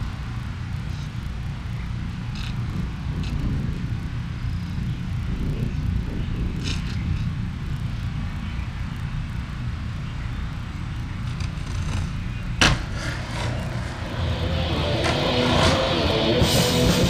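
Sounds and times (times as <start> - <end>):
low outdoor rumble: 0.0 - 17.0
skateboard clack: 11.3 - 17.0.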